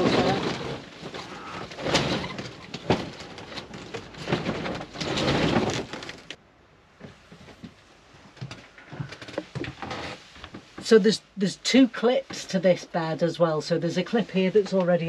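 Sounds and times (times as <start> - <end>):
roller blind slats rattling: 0.0 - 6.4.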